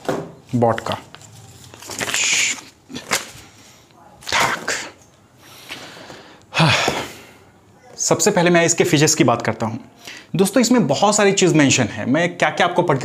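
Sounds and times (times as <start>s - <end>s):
packaging rustling: 0.0s - 4.7s.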